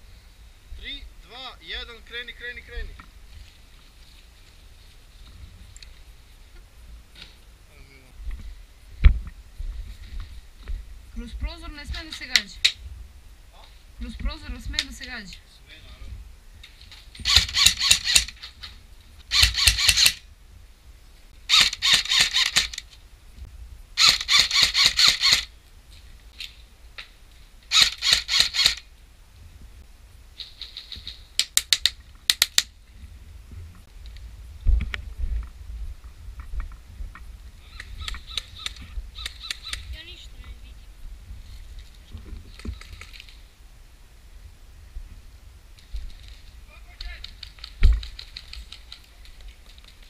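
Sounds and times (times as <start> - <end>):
airsoft rifle firing: 17.2 - 18.4, 19.3 - 20.2.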